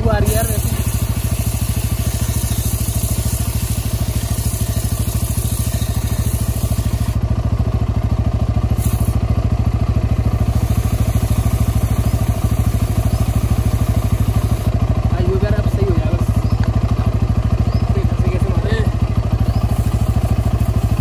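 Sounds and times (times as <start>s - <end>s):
motorcycle engine idling: 0.0s - 21.0s.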